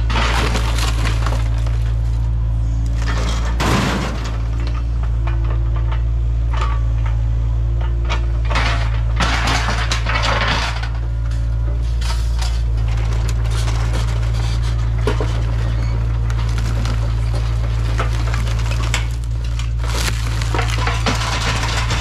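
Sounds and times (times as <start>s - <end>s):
diesel engine running: 0.0s - 22.0s
sheet metal crunching and scraping: 3.0s - 4.8s, 11.8s - 22.0s.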